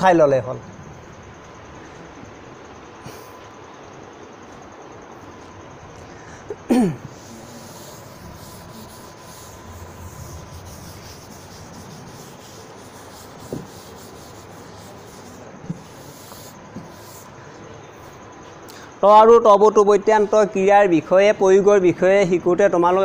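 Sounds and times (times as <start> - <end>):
duster rubbing on blackboard: 7.1 - 17.4.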